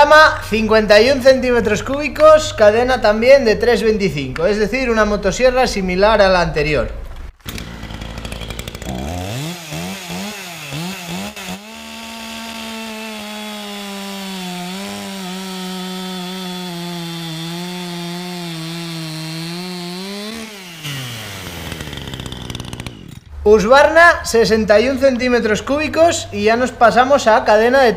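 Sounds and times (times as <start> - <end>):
chainsaw cutting through log: 7.4 - 23.3.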